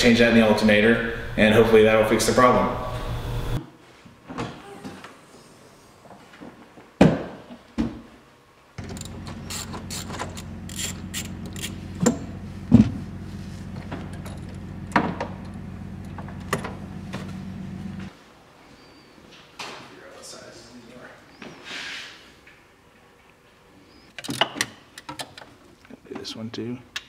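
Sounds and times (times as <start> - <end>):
steady low hum: 0.0 - 3.6, 8.8 - 18.2
ratchet wrench clicking: 8.9 - 11.8
car trunk lid opening: 13.7 - 17.6.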